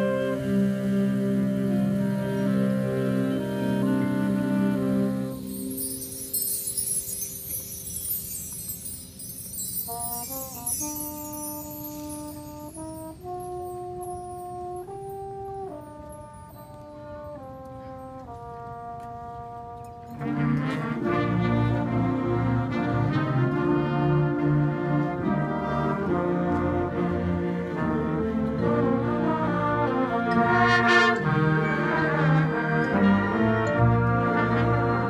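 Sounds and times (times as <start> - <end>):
marching band playing: 0.0 - 35.0
percussion: 4.6 - 23.6.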